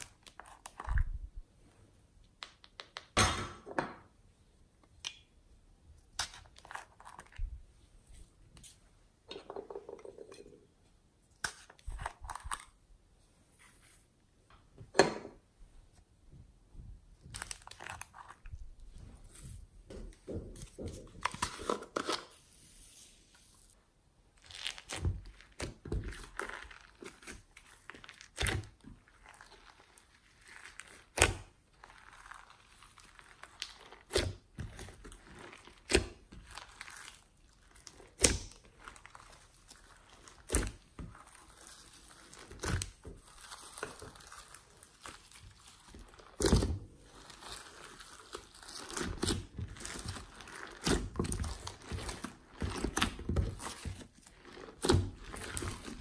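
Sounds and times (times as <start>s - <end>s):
slime crackling: 24.3s - 56.0s.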